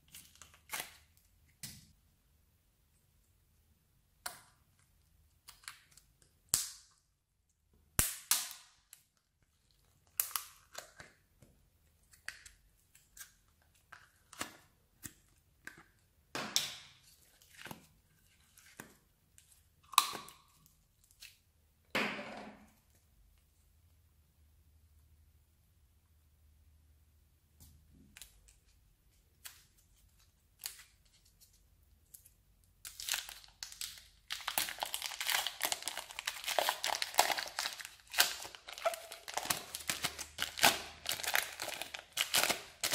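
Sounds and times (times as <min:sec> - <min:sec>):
slime popping and crackling: 0:32.9 - 0:42.9.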